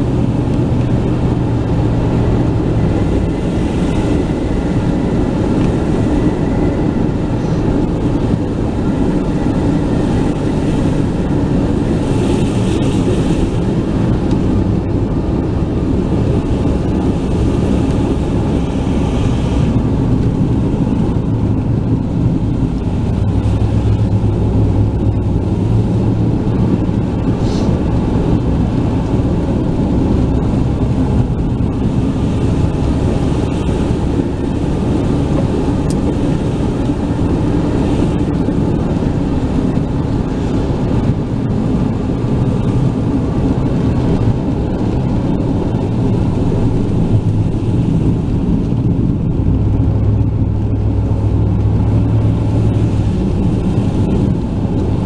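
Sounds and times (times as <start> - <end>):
car engine rumble from inside: 0.0 - 55.0
tyre hiss on wet road: 27.4 - 27.8.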